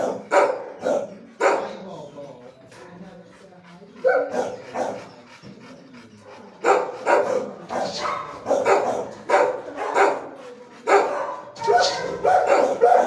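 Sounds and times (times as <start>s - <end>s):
dog barking: 0.0s - 1.7s, 4.0s - 5.0s, 6.6s - 13.0s.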